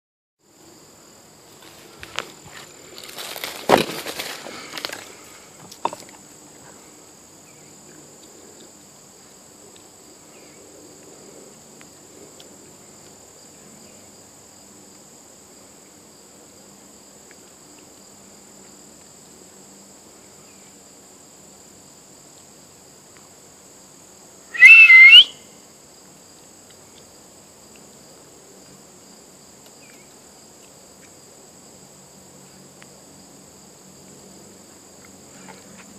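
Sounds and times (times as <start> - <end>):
insects droning: 0.4 - 35.9
two-note rising whistle: 24.6 - 25.3.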